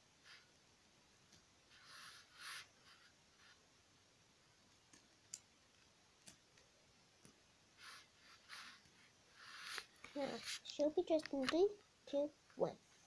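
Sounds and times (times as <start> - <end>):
cloth rustling: 7.8 - 10.8.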